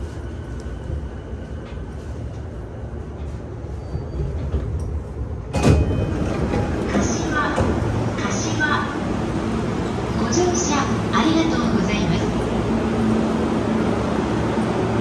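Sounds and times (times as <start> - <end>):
train car low rumble: 0.0 - 15.0
sliding doors opening: 5.4 - 8.4.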